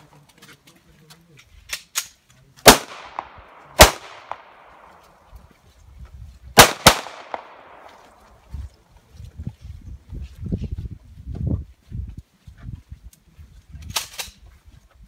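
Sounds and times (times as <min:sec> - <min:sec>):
footsteps on dirt path: 0:00.0 - 0:02.6, 0:03.5 - 0:06.6, 0:07.3 - 0:15.0
gunshots with long echo: 0:02.6 - 0:05.0, 0:06.6 - 0:08.3.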